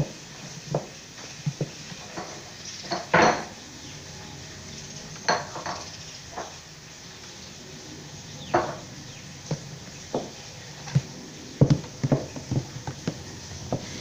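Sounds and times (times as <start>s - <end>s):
knock on wooden furniture: 11.0s - 13.9s.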